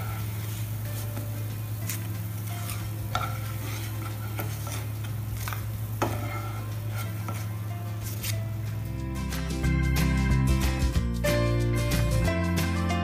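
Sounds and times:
wooden spatula scraping a pan: 0.0 - 8.8
hot oil sizzling in a pan: 0.0 - 9.0.

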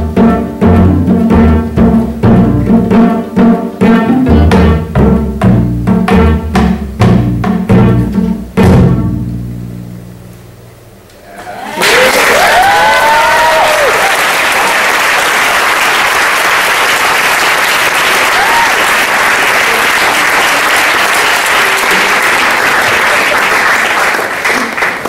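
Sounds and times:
crowd whooping: 11.2 - 15.3, 18.0 - 20.6
audience applauding: 11.3 - 25.0.

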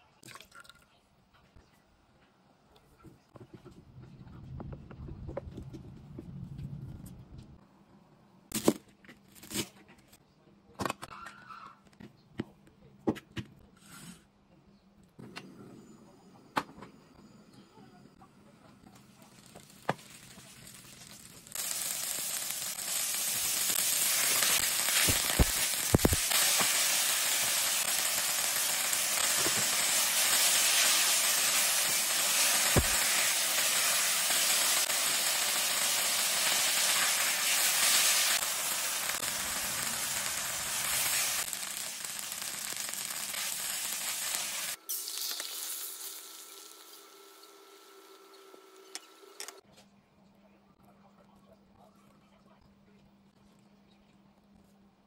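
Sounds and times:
food sizzling in hot oil: 19.2 - 48.6
egg frying: 19.2 - 49.4.

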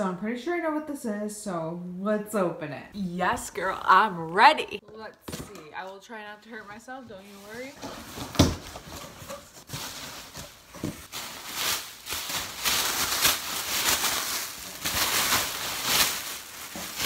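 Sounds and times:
plastic packing material crinkling: 7.3 - 17.0.

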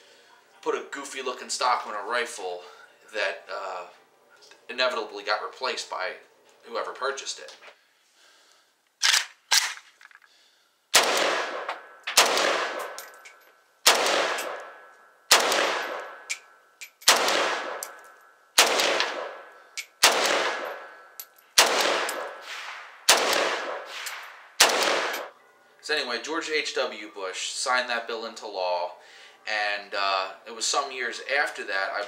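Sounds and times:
rifle shots with echo: 10.9 - 13.2, 13.8 - 25.3.

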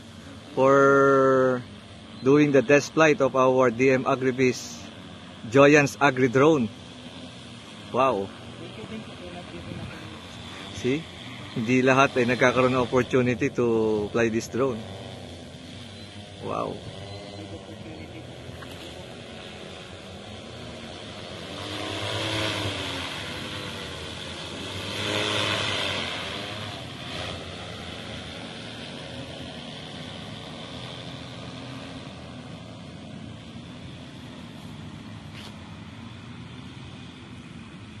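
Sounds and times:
drone propellers buzzing: 0.0 - 38.0.

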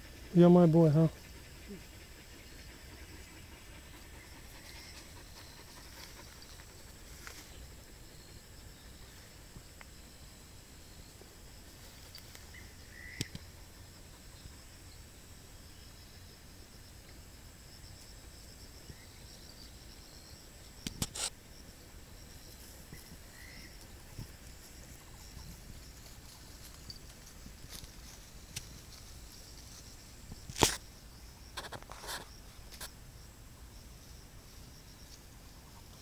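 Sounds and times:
insect chirring: 0.0 - 36.0.

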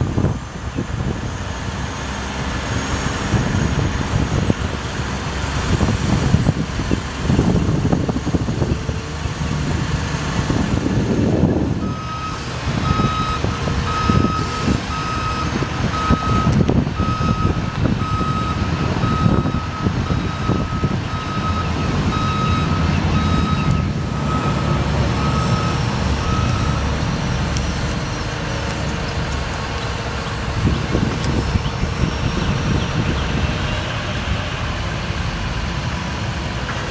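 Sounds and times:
truck engine running: 0.0 - 36.9
truck warning alarm beeping: 11.5 - 28.6.

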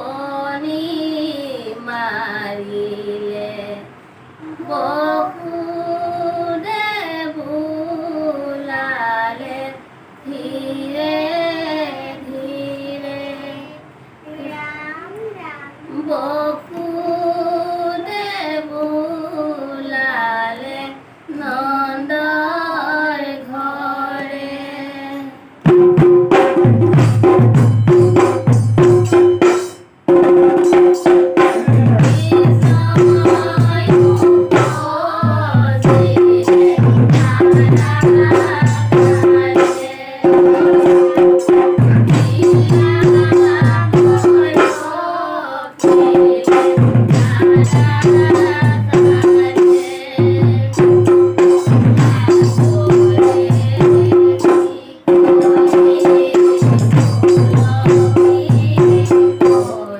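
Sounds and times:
children and women singing: 0.0 - 14.5, 15.8 - 59.9
drum beaten with a stick: 25.6 - 59.9
small hand cymbals: 26.9 - 30.0.

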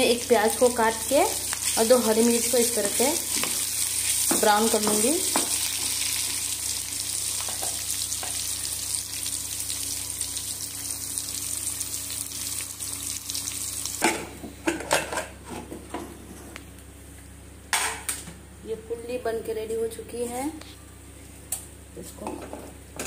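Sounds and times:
onions sizzling in hot oil: 0.0 - 14.3.

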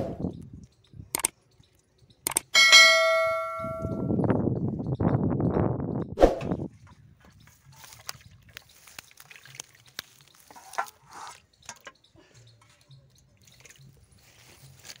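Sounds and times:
faint water drips: 7.8 - 15.0
small fish splashing in water: 8.0 - 10.5.

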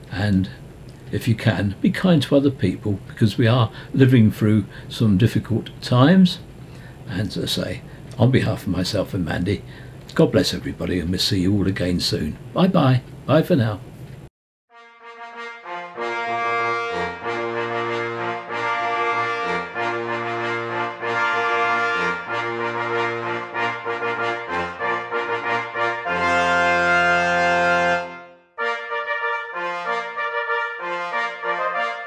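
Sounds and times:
brass chords: 14.7 - 32.0.

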